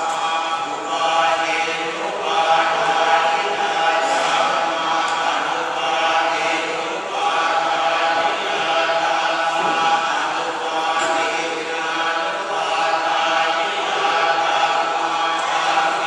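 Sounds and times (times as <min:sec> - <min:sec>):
monks chanting in unison: 0:00.0 - 0:16.0.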